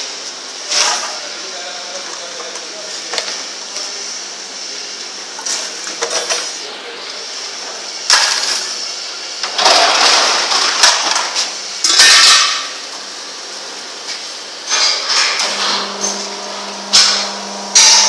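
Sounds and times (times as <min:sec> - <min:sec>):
plastic bottles clattering and crinkling: 0:09.4 - 0:11.4
steady high whine: 0:15.4 - 0:18.0.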